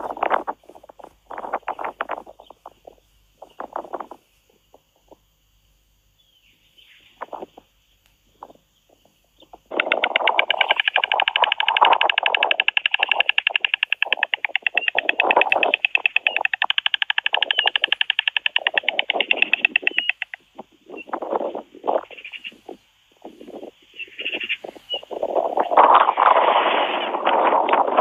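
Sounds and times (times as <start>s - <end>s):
stork bill clattering: 9.5s - 22.6s
wings flapping: 9.6s - 28.0s.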